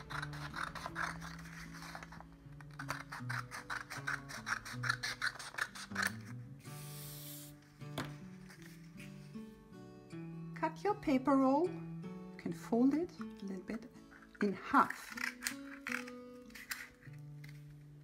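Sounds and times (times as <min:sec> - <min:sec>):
scissors snipping paper: 0:00.0 - 0:06.3, 0:14.7 - 0:17.6
acoustic guitar music: 0:00.0 - 0:18.0.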